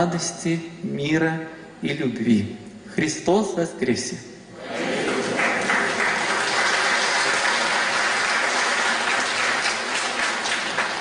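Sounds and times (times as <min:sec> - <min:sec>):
audience applauding: 0:04.7 - 0:11.0.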